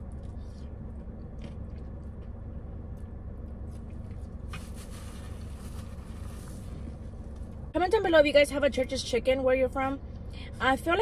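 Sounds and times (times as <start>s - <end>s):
soft chewing: 0.0s - 4.7s
low hum inside car: 0.0s - 11.0s.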